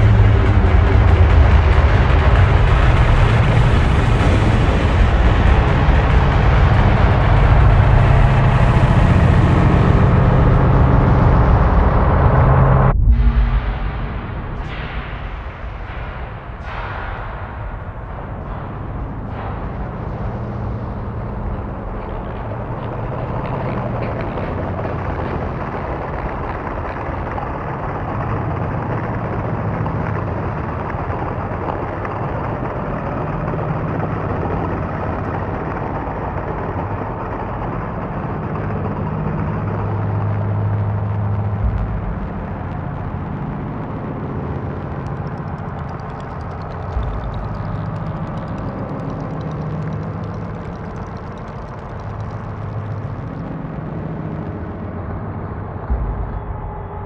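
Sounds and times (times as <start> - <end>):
low thumps: 0.0 - 27.0, 39.3 - 57.0
dense electronic noise texture: 0.0 - 57.0
low droning tones: 0.0 - 57.0.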